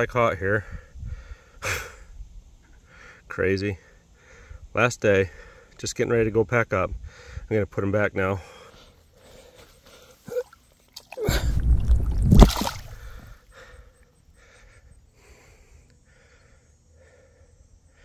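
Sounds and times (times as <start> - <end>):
fish splashing into water: 10.4 - 13.4.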